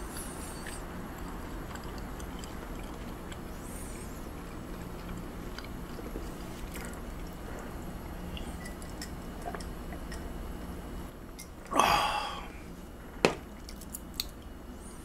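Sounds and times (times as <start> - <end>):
low background hum: 0.0 - 15.0
person chewing: 0.1 - 10.1.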